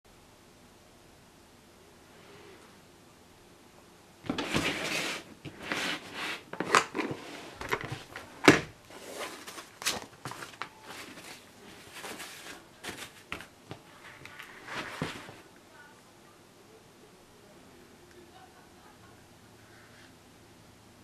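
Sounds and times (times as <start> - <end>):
plastic case scraping across table: 4.3 - 9.7
paper rustling: 4.3 - 15.5.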